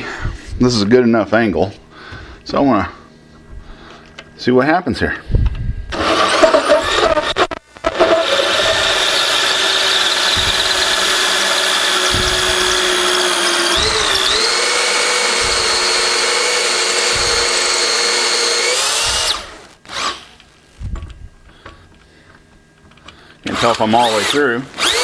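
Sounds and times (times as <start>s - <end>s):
power drill cutting wood: 5.9s - 20.4s, 23.5s - 25.0s.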